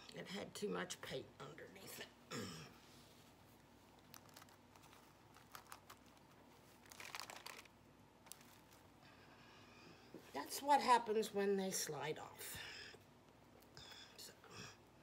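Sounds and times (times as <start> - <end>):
crinkly rustle: 3.0 - 9.0.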